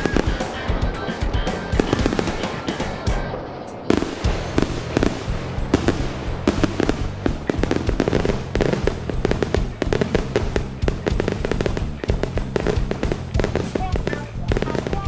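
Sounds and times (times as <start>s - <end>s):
fireworks bursting and crackling: 0.0s - 15.0s
music playing: 0.0s - 15.0s.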